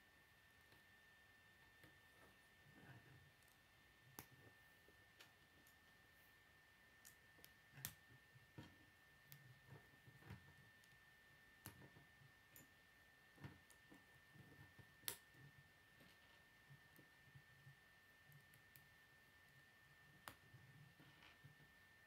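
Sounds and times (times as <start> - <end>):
faint high whine: 0.0 - 22.0.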